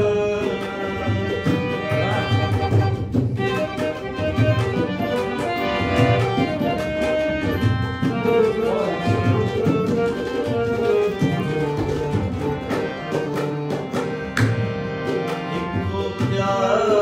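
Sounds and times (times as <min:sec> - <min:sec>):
harmonium melody: 0:00.0 - 0:17.0
rhythmic beat: 0:00.0 - 0:17.0.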